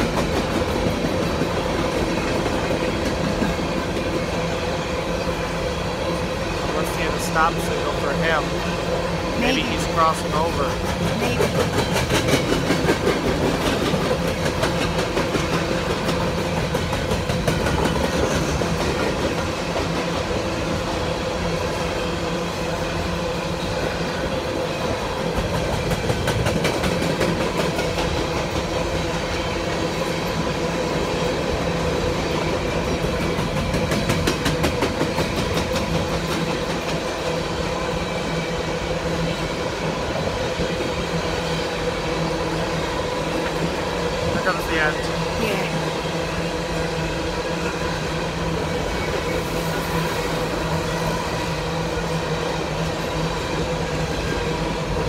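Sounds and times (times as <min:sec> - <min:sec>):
wheels clacking over rail joints: 0:00.0 - 0:04.5, 0:10.3 - 0:20.6, 0:23.6 - 0:38.4
train wheels rumbling on rails: 0:00.0 - 0:55.0.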